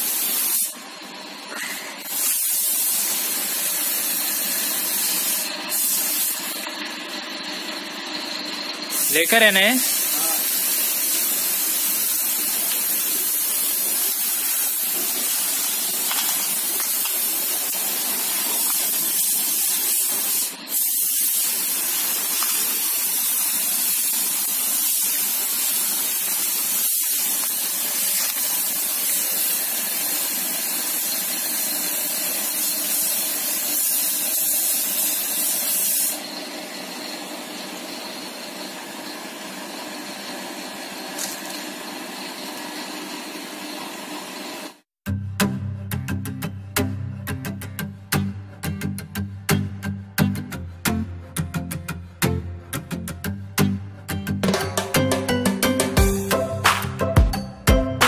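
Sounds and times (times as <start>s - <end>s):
paint spray gun hissing: 0.0s - 0.8s, 2.0s - 6.7s, 8.9s - 36.2s.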